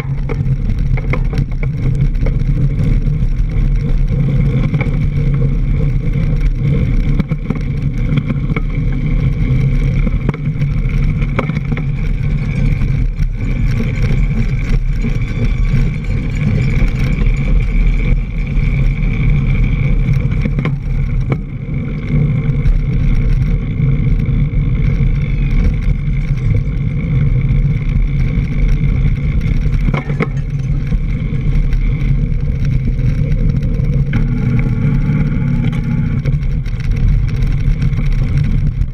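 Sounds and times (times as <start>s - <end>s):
bike knocking over bumps: 0.0s - 38.9s
mountain bike on dirt trail: 0.0s - 38.9s
wind on microphone: 0.0s - 38.9s.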